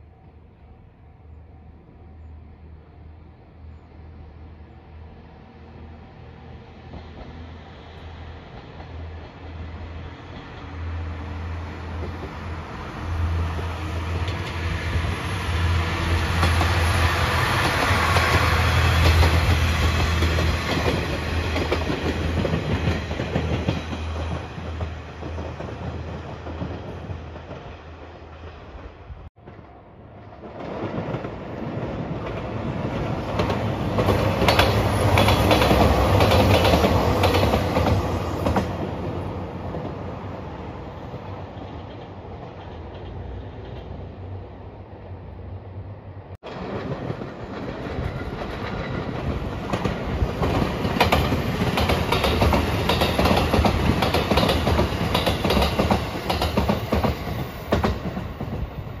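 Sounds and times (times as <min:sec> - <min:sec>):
diesel train engine hum: 0:00.0 - 0:30.4
train wheels on rails: 0:06.6 - 0:44.8, 0:46.4 - 0:59.0.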